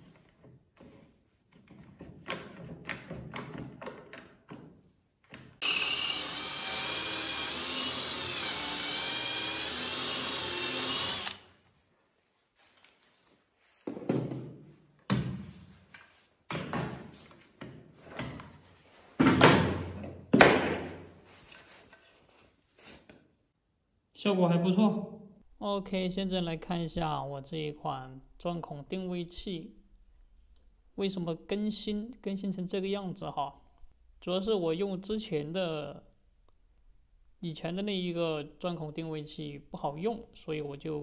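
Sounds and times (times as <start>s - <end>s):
electric drill boring into wood: 5.6s - 11.5s
sharp knocks of boards handled: 19.2s - 21.1s.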